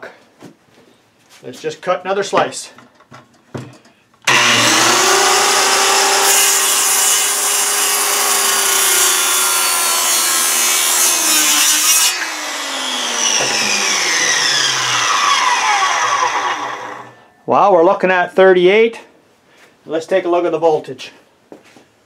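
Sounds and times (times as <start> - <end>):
circular saw cutting wood: 4.3 - 17.2.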